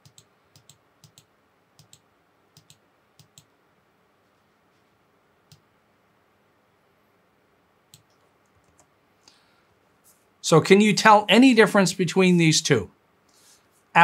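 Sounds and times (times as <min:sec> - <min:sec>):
computer mouse clicks: 0:00.0 - 0:03.5, 0:05.5 - 0:05.7, 0:07.9 - 0:08.9.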